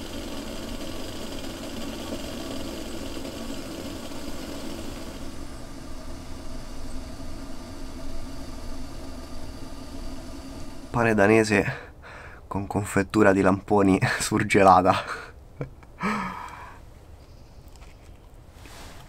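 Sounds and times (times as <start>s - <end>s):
stove burner flame hissing: 0.0s - 12.4s.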